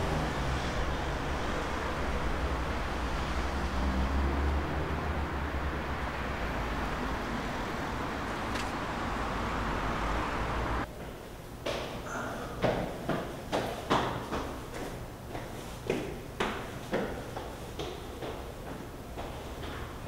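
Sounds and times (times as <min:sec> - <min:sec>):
street traffic rumble: 0:00.0 - 0:20.0.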